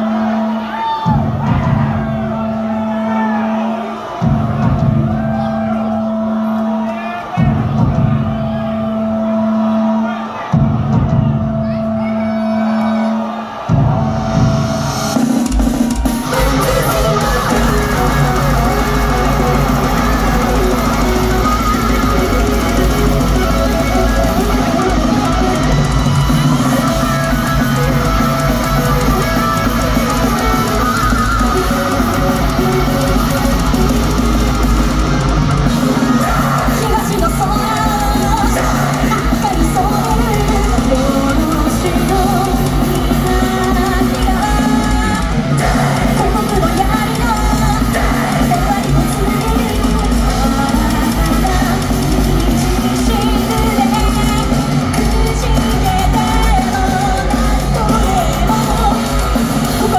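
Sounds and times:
distorted electric guitars: 0.0 - 59.9
pounding drums: 0.0 - 59.9
person singing: 16.2 - 34.3, 35.7 - 59.9.

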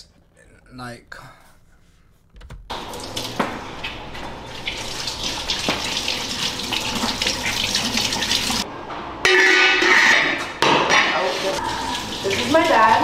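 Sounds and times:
faucet running into sink: 2.7 - 8.6, 11.1 - 13.0
hands washing under water: 2.7 - 8.6.

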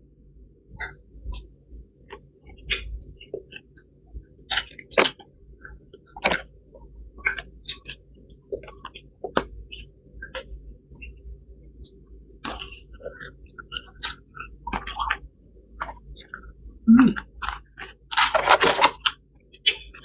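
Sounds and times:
chewing crunches and smacks: 2.1 - 20.0
food handled by hand: 17.4 - 20.0.

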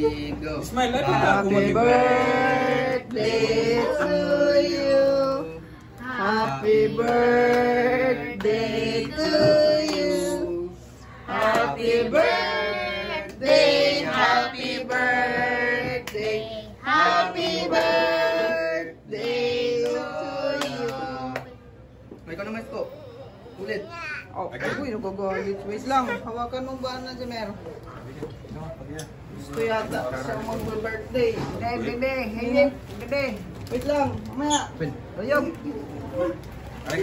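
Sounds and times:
group singing a celebration song: 1.0 - 21.8.

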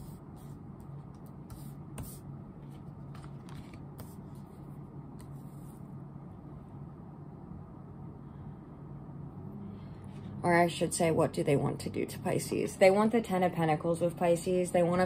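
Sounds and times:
cards shuffling: 2.0 - 4.2.

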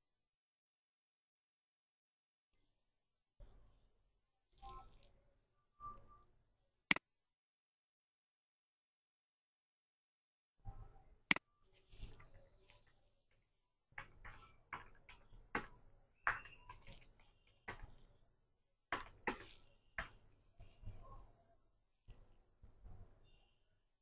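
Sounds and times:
computer keyboard clicks: 18.9 - 20.2
computer mouse clicks: 18.9 - 20.2.

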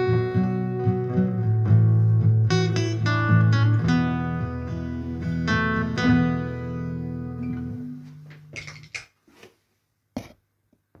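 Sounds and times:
acoustic guitar chords ringing: 0.0 - 8.3.

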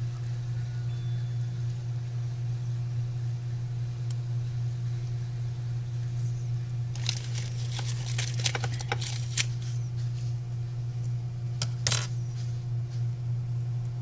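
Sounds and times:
steady low hum: 0.0 - 14.0
plastic crackling in fingers: 6.9 - 9.7.

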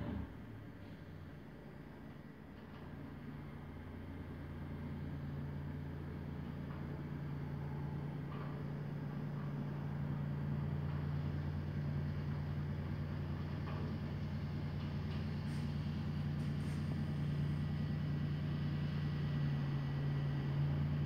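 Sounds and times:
heavy diesel engine running: 0.0 - 21.0.

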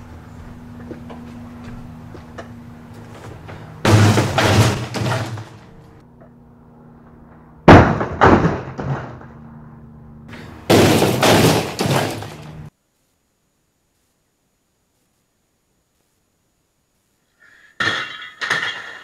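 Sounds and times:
clattering and rattling: 3.1 - 5.9
dishwasher crashing onto concrete: 3.9 - 5.7, 10.7 - 12.6, 17.8 - 19.0.

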